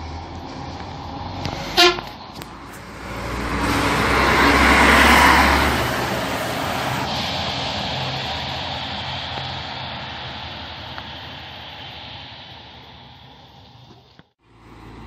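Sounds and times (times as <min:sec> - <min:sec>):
bus driving past: 0:00.0 - 0:15.0
short horn toot: 0:01.6 - 0:02.1.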